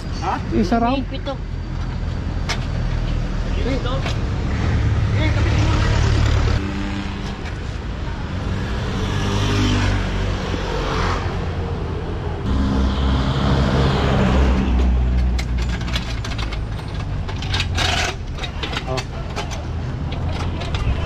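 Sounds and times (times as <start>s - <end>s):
heavy vehicle rumbling: 0.0s - 21.0s
passing vehicles humming: 0.0s - 21.0s.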